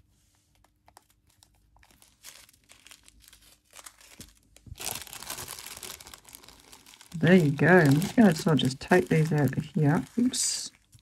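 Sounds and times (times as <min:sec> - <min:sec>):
plastic bags crinkling: 0:00.6 - 0:11.0.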